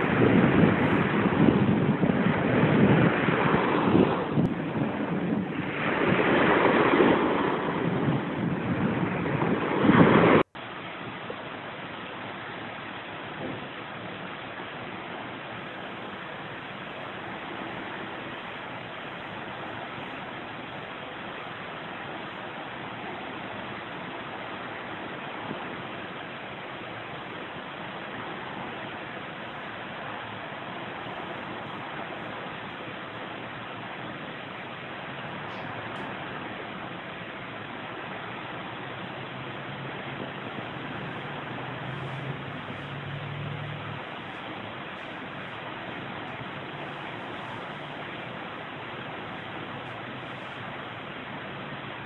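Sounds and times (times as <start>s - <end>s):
wind buffeting microphone: 0.0s - 10.6s, 13.2s - 14.2s, 15.5s - 52.0s
seaside rushing noise: 0.0s - 52.0s
surf: 0.0s - 52.0s
steady hiss: 10.5s - 52.0s.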